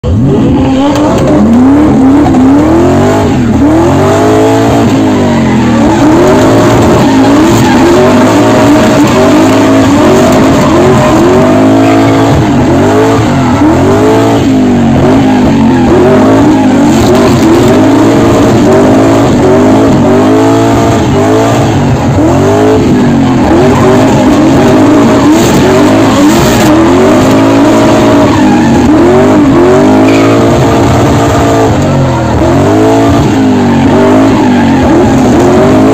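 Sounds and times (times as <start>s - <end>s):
car engine revving: 0.0s - 35.9s.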